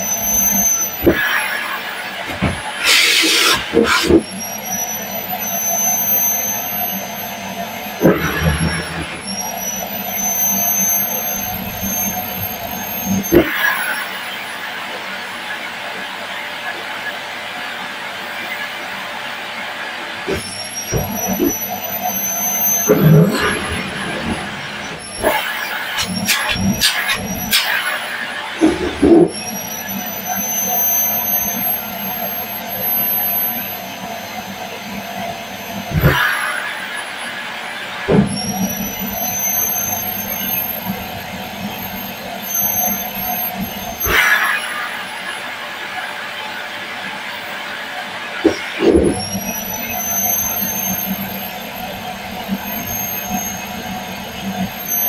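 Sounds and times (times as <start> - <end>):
vacuum cleaner motor whine: 0.0 - 14.4, 20.1 - 44.2, 47.1 - 55.0
hose sucking at fabric: 2.8 - 4.2.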